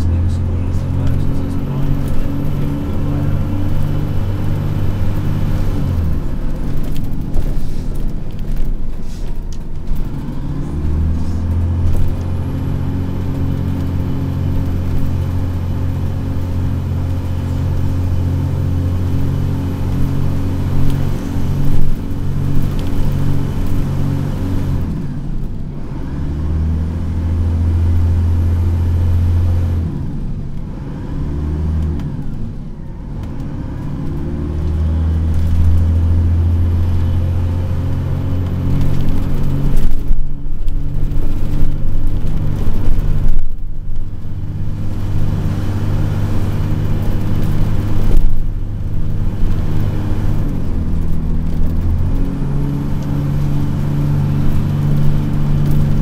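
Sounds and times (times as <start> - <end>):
bus diesel engine droning: 0.0 - 56.0.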